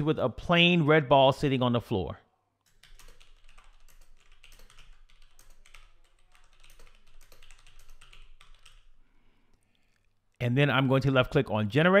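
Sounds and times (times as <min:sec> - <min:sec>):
typing on computer keyboard: 0:02.6 - 0:10.2.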